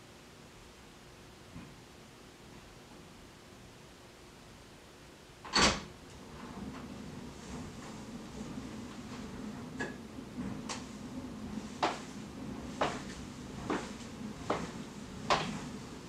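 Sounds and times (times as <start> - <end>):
steady low hum: 0.0 - 16.0
footsteps descending stairs: 7.6 - 16.0.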